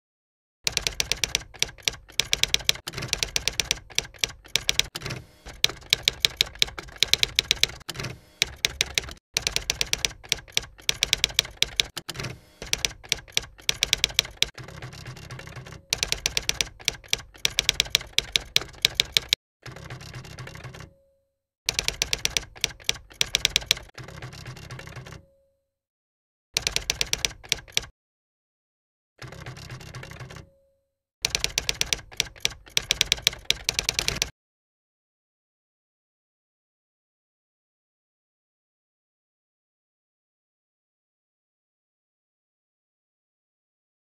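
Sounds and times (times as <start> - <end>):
typewriter keys clacking: 0.7 - 20.9, 21.7 - 25.2, 26.6 - 27.9, 31.2 - 34.3.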